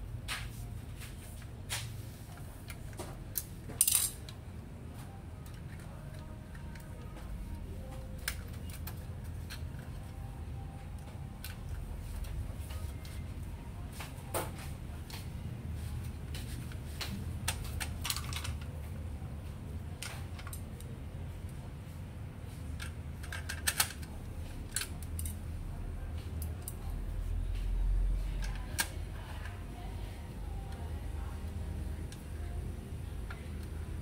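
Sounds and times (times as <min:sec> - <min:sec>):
steady low hum: 0:00.0 - 0:34.0
plastic and metal printer parts clicking: 0:16.8 - 0:18.8, 0:22.8 - 0:25.4.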